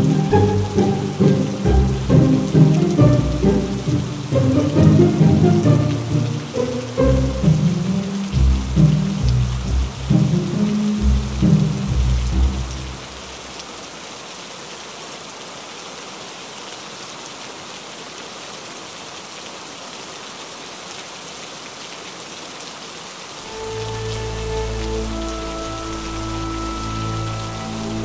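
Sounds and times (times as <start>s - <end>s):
low held music notes: 0.0s - 13.4s, 23.5s - 28.0s
heavy rain: 0.0s - 28.0s.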